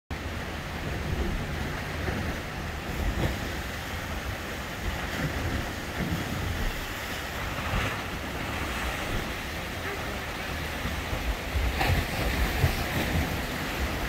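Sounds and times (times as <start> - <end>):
ocean surf rushing through rocks: 0.1 - 14.0.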